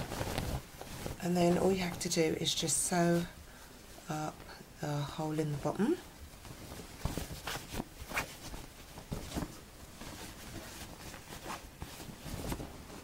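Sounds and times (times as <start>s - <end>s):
fabric rustling: 0.0s - 13.0s
sharp fabric scuffs: 6.3s - 13.0s.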